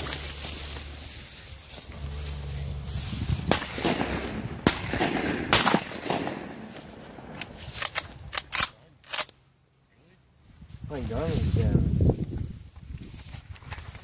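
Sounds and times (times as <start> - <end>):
shotgun shots with echo: 3.5 - 7.4.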